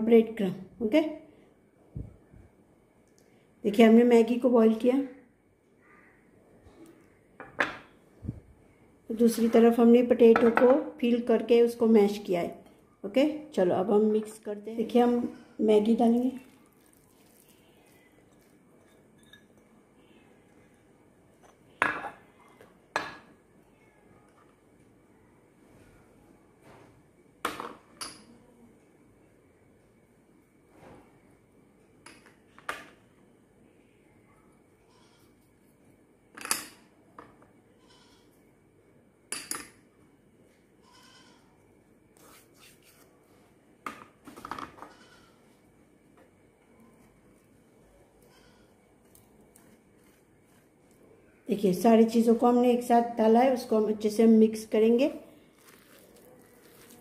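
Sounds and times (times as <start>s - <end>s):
glass dishes clinking: 18.8s - 19.7s.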